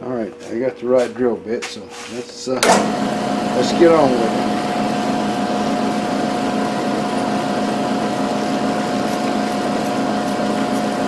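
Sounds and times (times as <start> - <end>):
milling machine hum: 2.3 - 11.0.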